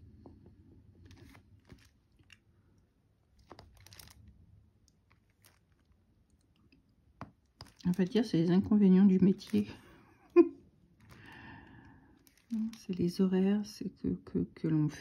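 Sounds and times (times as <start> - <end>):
faint clicks and crackles: 1.0 - 10.3, 10.9 - 13.2.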